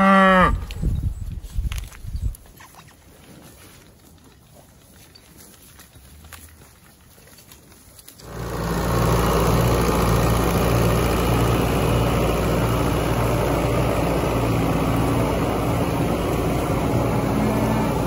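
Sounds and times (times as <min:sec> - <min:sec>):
feed mixer wagon engine drone: 0:08.2 - 0:18.0.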